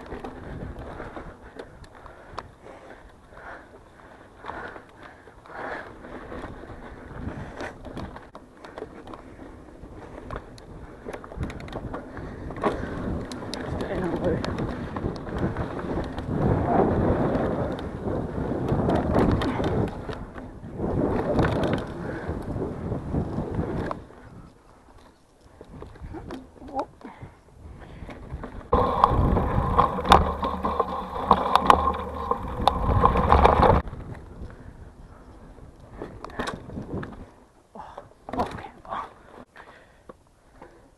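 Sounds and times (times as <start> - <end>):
bike tyre rumble on dirt: 0.0 - 24.8, 27.2 - 37.5
bike clicks and rattles: 0.0 - 40.8
sharp clicks and knocks: 28.7 - 33.8.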